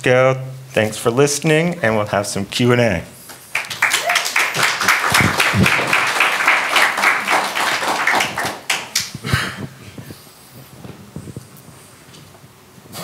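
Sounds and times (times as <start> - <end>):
audience applauding: 3.4 - 9.3.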